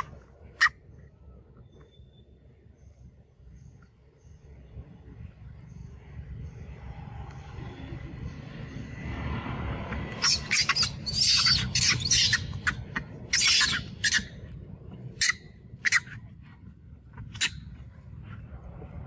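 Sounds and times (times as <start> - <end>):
monkey shrieking: 0.0 - 0.8, 10.1 - 14.5, 15.1 - 16.2, 17.3 - 17.6.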